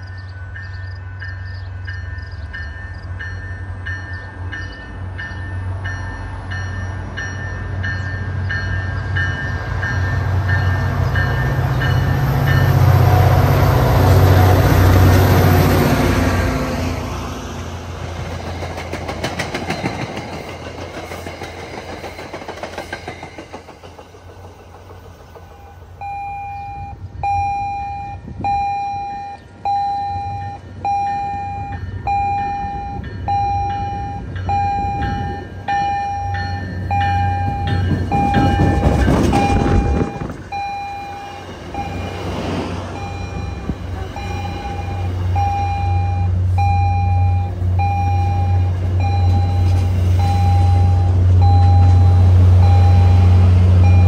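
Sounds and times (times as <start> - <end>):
train rumbling past: 0.0 - 54.0
train wheels clacking over rail joints: 18.2 - 25.8, 35.1 - 40.6
electronic warning beeps: 26.0 - 42.3, 42.9 - 54.0.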